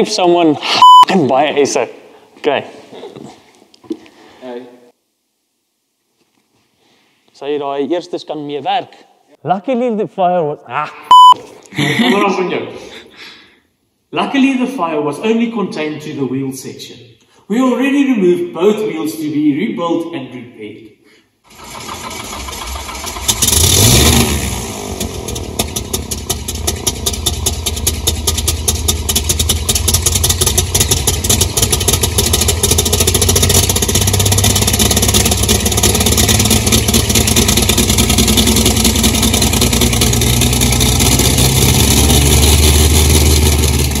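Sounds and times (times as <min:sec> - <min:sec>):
plane engine starting and idling: 0:21.5 - 0:44.0.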